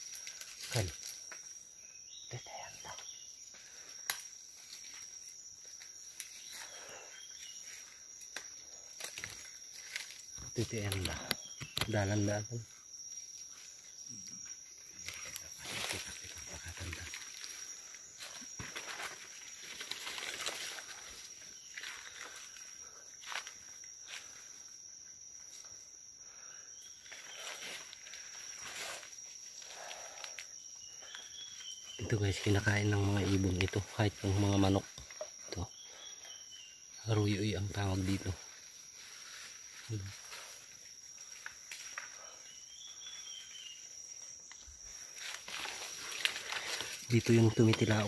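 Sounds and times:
high insect drone: 0.0 - 48.0
rustling through undergrowth: 3.6 - 12.3, 12.9 - 24.9, 37.8 - 48.0
footsteps crunching dry leaves: 15.2 - 22.4, 45.0 - 47.2.

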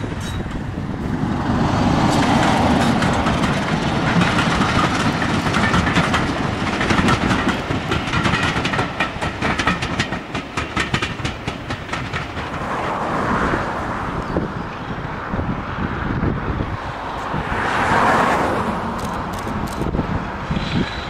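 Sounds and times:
train wheels clicking on rail joints: 0.0 - 14.4, 18.8 - 21.0
diesel locomotive engine: 0.0 - 21.0.

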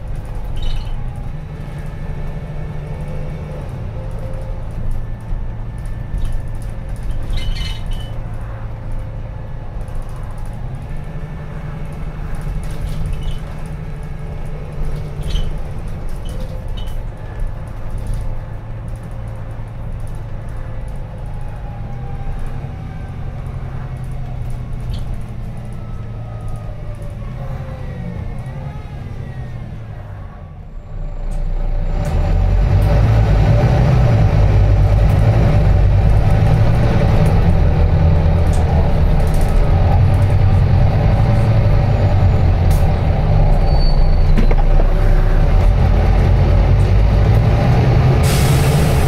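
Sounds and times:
bus engine droning: 0.0 - 49.0
light clicks and rattles: 11.8 - 21.6.

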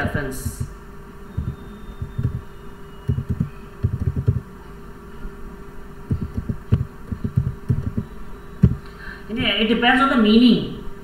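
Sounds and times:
low electrical hum: 0.0 - 11.0
keyboard typing: 1.4 - 2.4, 3.1 - 4.4, 6.1 - 8.8.

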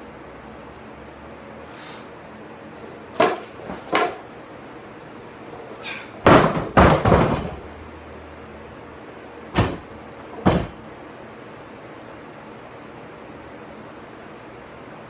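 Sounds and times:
barbell heavy impacts: 3.2 - 4.3, 6.2 - 7.7, 9.5 - 10.8.

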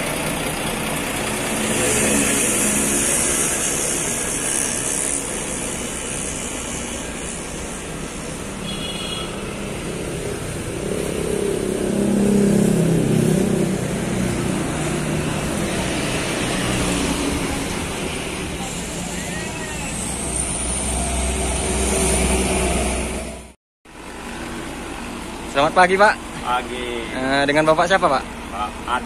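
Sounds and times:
road traffic noise: 0.0 - 29.0
vehicle passing: 1.1 - 23.5.

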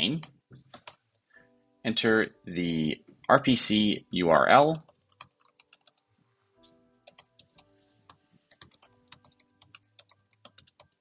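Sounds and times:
soft background music: 0.0 - 11.0
keyboard typing: 0.2 - 1.0, 4.7 - 6.1, 7.0 - 11.0.

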